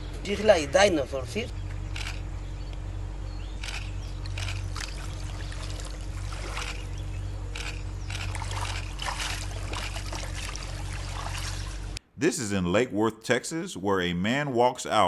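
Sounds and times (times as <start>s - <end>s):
steady low hum: 0.0s - 12.8s
river water splashing: 4.2s - 12.0s.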